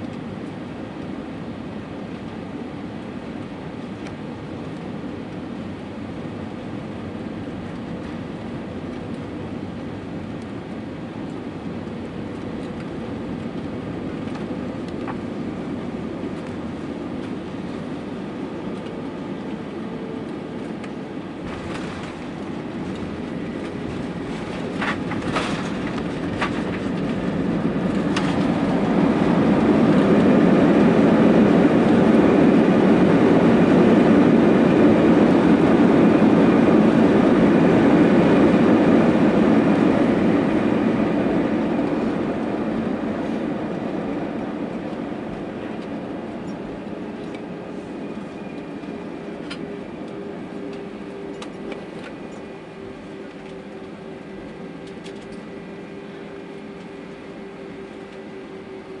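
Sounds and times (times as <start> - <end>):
jet engine reverse thrust: 0.0 - 59.0
tyre and runway rumble: 21.4 - 44.4.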